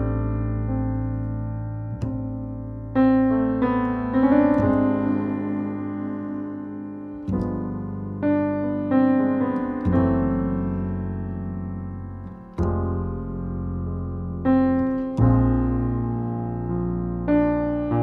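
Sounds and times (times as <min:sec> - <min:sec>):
piano playing slow jazz ballad: 0:00.0 - 0:18.0.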